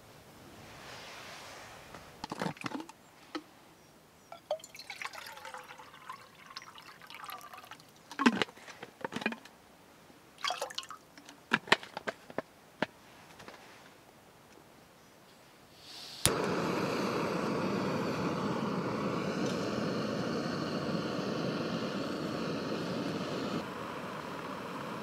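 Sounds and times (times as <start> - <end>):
water pouring into metal mug: 4.4 - 7.8, 10.4 - 11.0.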